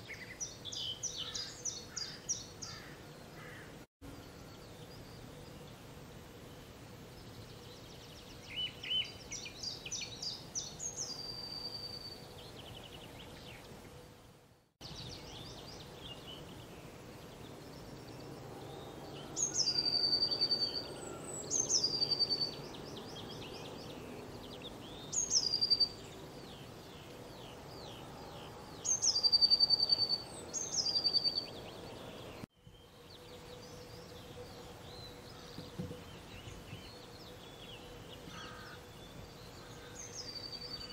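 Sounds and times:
faint bird calls: 0:00.0 - 0:04.4, 0:37.9 - 0:40.9
songbird singing high phrase: 0:07.1 - 0:13.7, 0:14.8 - 0:40.9.

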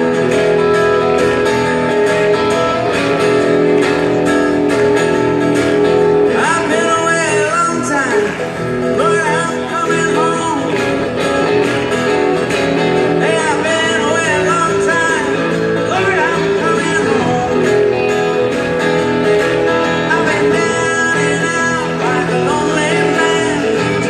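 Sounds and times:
acoustic guitar: 0:00.0 - 0:24.0
man singing: 0:05.8 - 0:11.6, 0:12.8 - 0:24.0.

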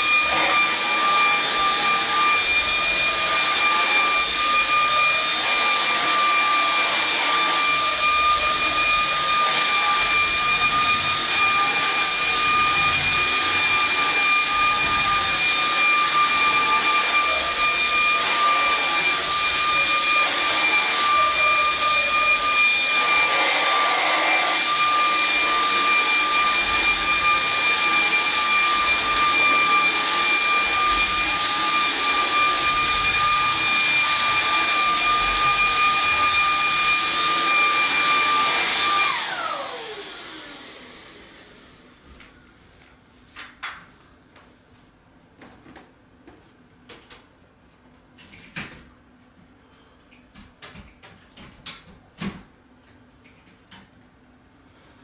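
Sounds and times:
vacuum brush on rug: 0:00.0 - 0:42.0
stick vacuum motor whine: 0:00.0 - 0:42.4.

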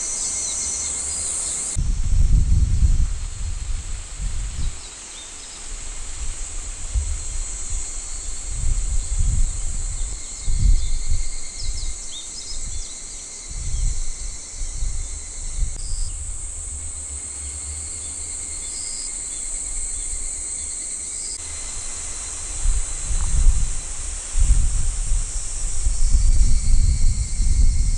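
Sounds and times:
insects trilling: 0:00.0 - 0:27.9
wind buffeting microphone: 0:01.8 - 0:04.8, 0:05.7 - 0:17.9, 0:21.6 - 0:27.9.

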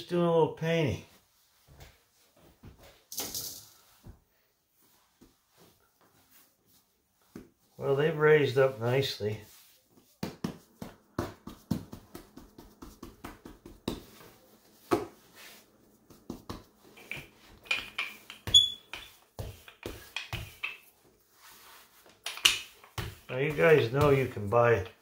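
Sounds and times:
rolling pin on dough: 0:06.2 - 0:25.0
fingertips patting dough: 0:09.4 - 0:25.0.

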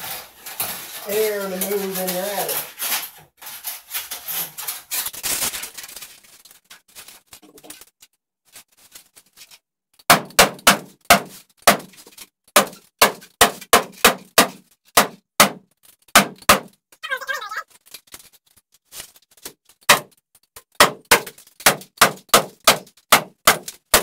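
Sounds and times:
stiff plastic rustling: 0:00.0 - 0:09.7, 0:17.0 - 0:21.9.

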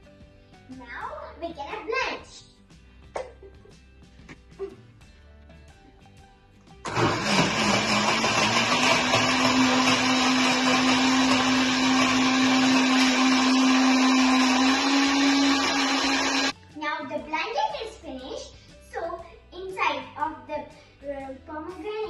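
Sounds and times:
electric blender running: 0:06.8 - 0:16.6.

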